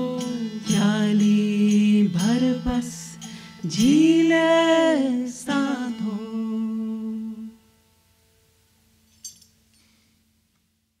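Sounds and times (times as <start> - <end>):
light clink: 9.1 - 9.9.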